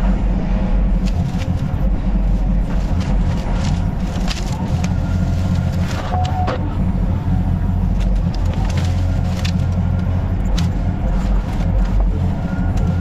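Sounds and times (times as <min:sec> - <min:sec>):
excavator diesel engine running: 0:00.0 - 0:13.0.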